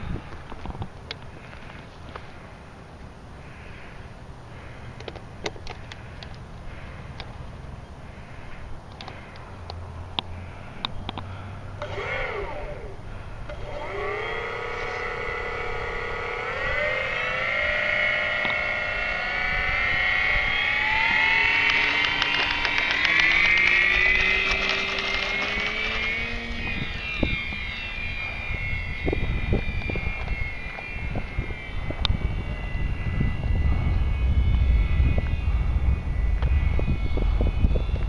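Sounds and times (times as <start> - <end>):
model plane electric motor whining: 11.8 - 38.0.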